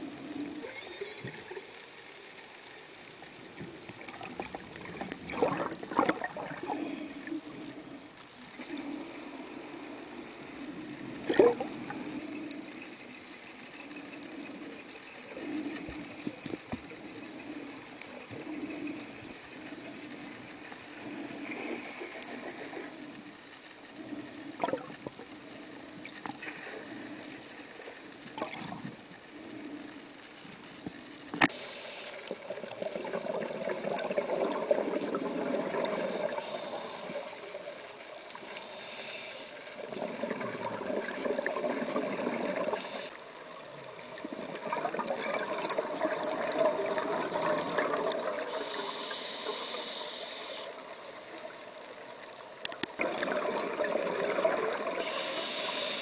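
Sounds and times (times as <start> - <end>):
underwater water noise: 0.0 - 56.0
bubbling rush on exhale: 4.0 - 12.9, 24.0 - 27.4, 38.4 - 43.1, 44.0 - 50.8, 53.0 - 56.0
regulator hiss on inhale: 6.5 - 28.3, 28.9 - 32.9, 35.6 - 41.1, 41.8 - 44.2, 46.8 - 52.5, 54.7 - 56.0.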